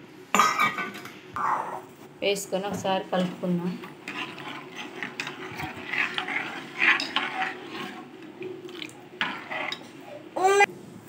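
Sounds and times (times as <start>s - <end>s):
ladle scraping steel pot: 3.1s - 10.1s.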